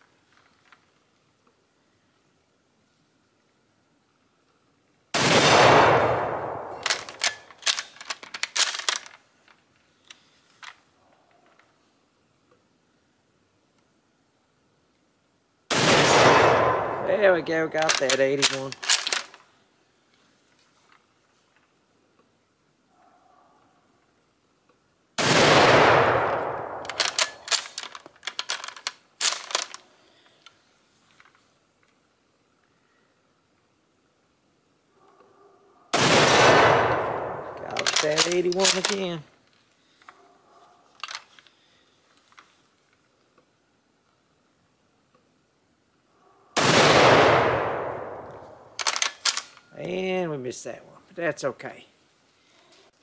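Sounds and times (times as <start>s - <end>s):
rifle shot echo: 5.2s - 7.3s, 15.7s - 17.4s, 25.2s - 27.6s, 35.9s - 38.2s, 46.6s - 48.8s
rifle bolt clicking and clacking: 6.0s - 9.2s, 17.8s - 19.4s, 25.8s - 29.8s, 36.3s - 39.1s, 41.0s - 41.5s, 47.4s - 49.7s.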